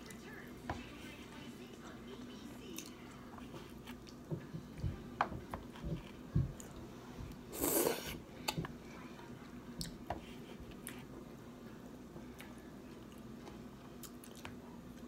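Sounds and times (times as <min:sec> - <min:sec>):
chewing and mouth sounds: 0:03.8 - 0:04.3, 0:09.8 - 0:10.0, 0:12.3 - 0:15.0.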